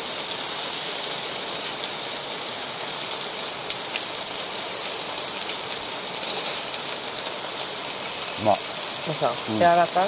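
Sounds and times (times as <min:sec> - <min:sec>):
rain falling on a tent: 0:00.0 - 0:10.0.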